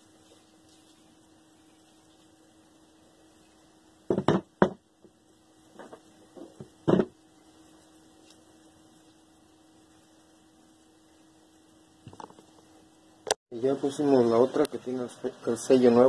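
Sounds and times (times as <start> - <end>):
faint steady hum: 0.0 - 16.0
knocks and clunks of pump housing: 4.1 - 4.8, 5.8 - 7.2.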